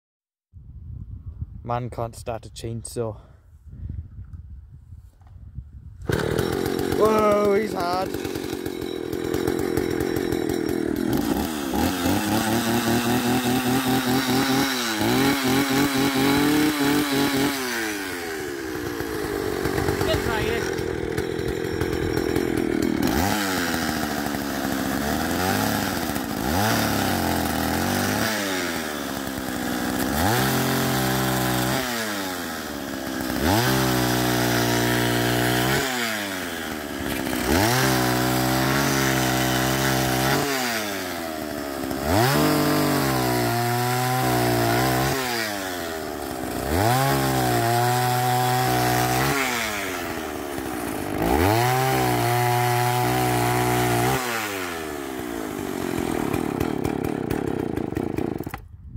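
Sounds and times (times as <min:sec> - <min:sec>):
chainsaw revving: 0:06.0 - 0:58.7.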